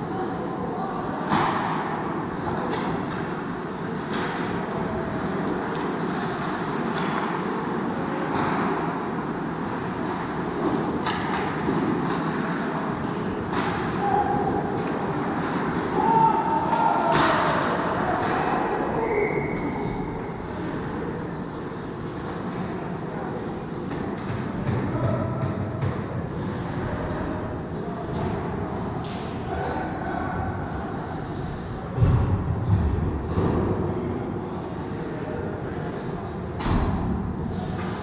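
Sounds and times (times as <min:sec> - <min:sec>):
arena noise: 0:00.0 - 0:38.0
hockey sticks and puck knocking: 0:10.1 - 0:12.4.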